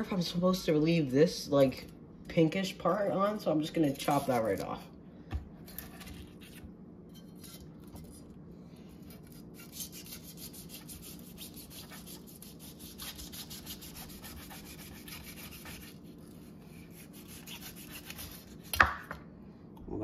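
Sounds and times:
knife sawing through fruit: 0:09.0 - 0:18.7.

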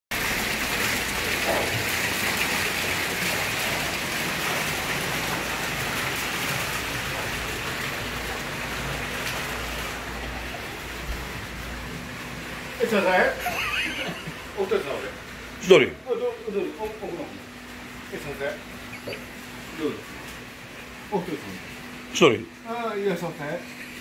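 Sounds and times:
water splashing in stone fountain: 0:00.1 - 0:15.5.

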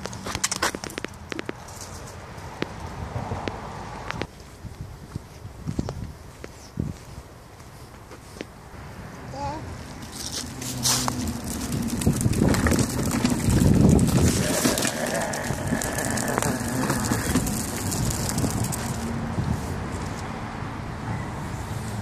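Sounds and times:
tricycle wheels rumbling on concrete: 0:00.0 - 0:04.4, 0:09.3 - 0:20.2.

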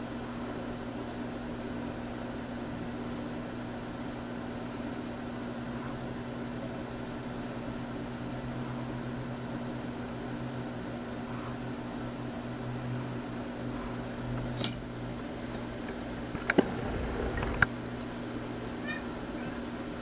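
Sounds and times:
low electrical hum: 0:00.0 - 0:20.0
clicks: 0:15.5 - 0:18.1.

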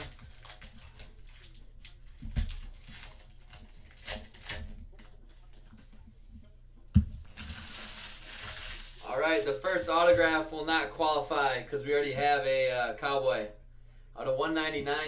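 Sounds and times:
cards and wrappers rustling: 0:00.0 - 0:05.9, 0:07.1 - 0:09.1.

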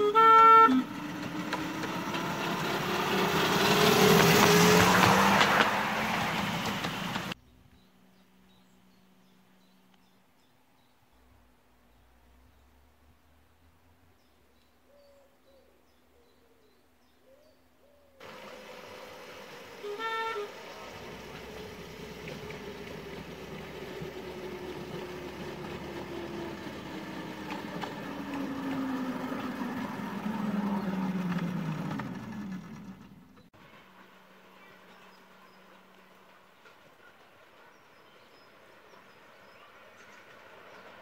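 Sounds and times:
locomotive toot: 0:00.0 - 0:05.6, 0:18.2 - 0:32.9
miniature train running: 0:00.0 - 0:07.4, 0:18.2 - 0:33.2.

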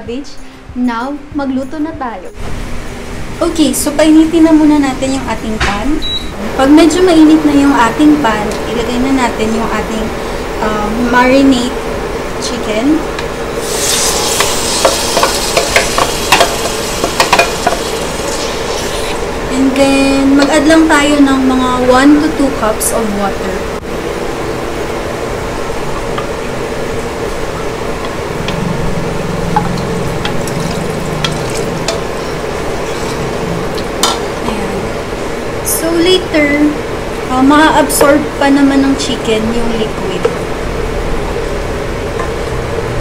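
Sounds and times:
chicken sizzling in a hot pan: 0:13.6 - 0:19.3
water pouring into pan: 0:30.3 - 0:31.9
wooden spatula scraping bowl and pan: 0:31.2 - 0:33.3.

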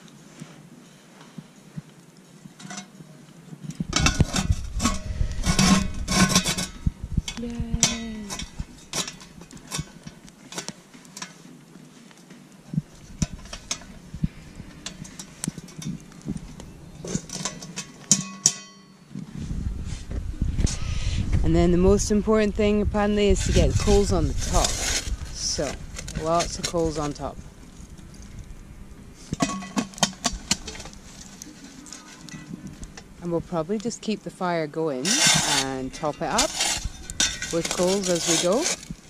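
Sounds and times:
metal pot lid clanking and scraping: 0:04.0 - 0:11.4, 0:17.0 - 0:19.0, 0:29.3 - 0:31.4, 0:35.0 - 0:38.9.

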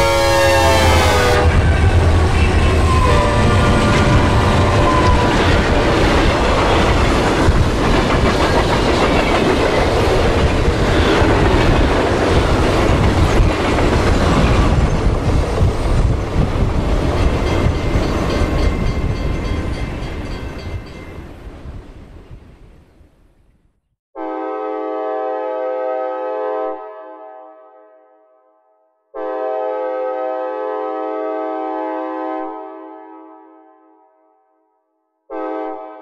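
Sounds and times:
train rumbling with wheel clatter: 0:00.0 - 0:22.5.

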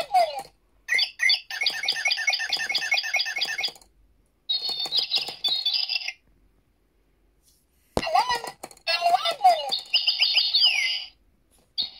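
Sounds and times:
electronic bird chirps: 0:00.9 - 0:03.8, 0:04.5 - 0:06.2, 0:09.7 - 0:11.2.

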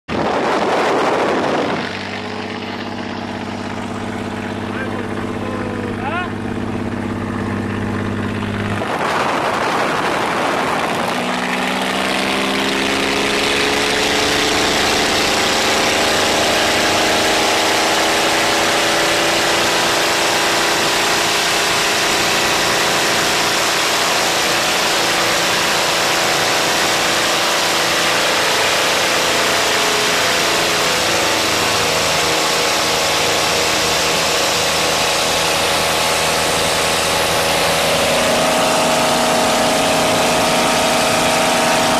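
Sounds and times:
wind rushing: 0:00.1 - 0:03.9, 0:08.6 - 0:11.3
propeller plane engine: 0:00.1 - 0:41.9.

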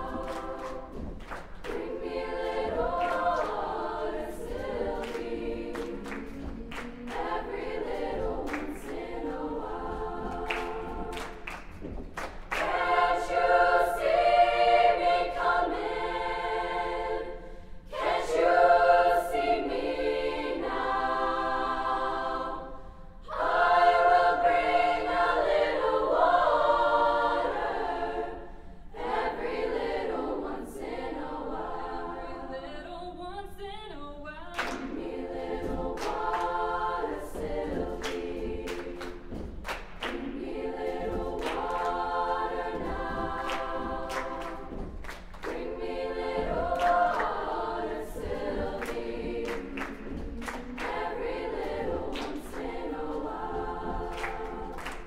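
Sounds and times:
body percussion hits: 0:00.0 - 0:15.6, 0:34.6 - 0:55.0
women's choir singing a cappella: 0:00.0 - 0:55.0.

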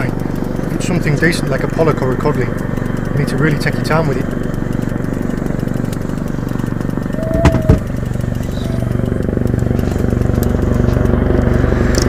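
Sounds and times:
boat engine running at low revs: 0:00.0 - 0:12.0
sharp knocks: 0:07.2 - 0:08.0.

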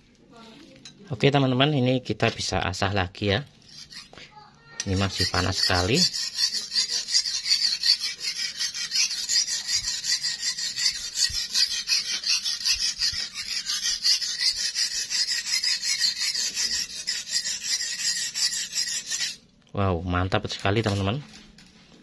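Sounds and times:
knife scraping on whetstone: 0:03.6 - 0:04.2, 0:04.8 - 0:19.4.

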